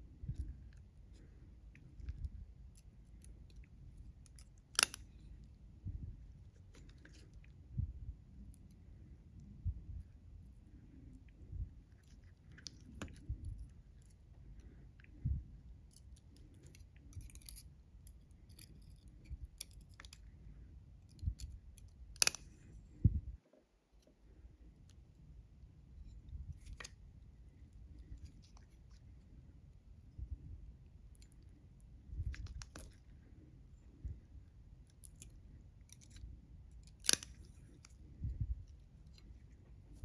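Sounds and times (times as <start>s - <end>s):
scissors snipping thread: 1.8s - 5.2s, 21.0s - 22.6s, 34.9s - 38.0s.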